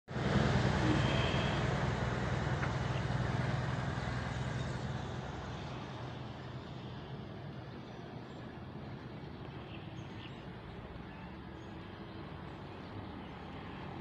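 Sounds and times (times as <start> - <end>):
vehicle engine passing: 0.1 - 7.0.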